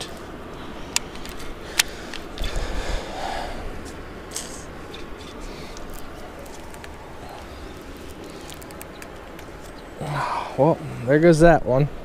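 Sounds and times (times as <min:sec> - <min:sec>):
small clicks: 0:08.1 - 0:09.8.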